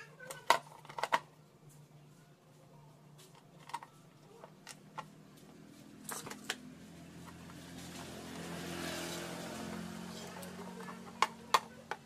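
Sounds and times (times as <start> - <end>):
vehicle driving past: 6.6 - 11.2.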